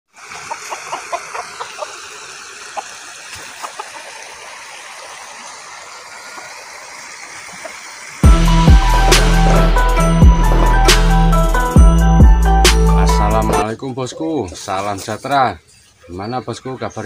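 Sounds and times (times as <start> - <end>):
creek water flowing: 0.1 - 17.0
music: 8.2 - 13.6.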